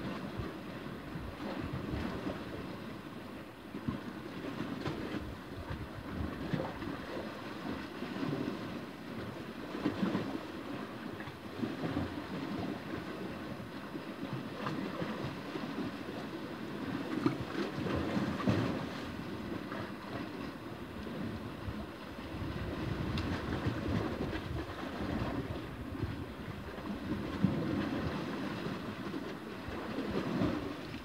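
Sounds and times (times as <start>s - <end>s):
waves lapping on rocky shore: 0.0s - 31.0s
wind buffeting microphone: 17.7s - 31.0s.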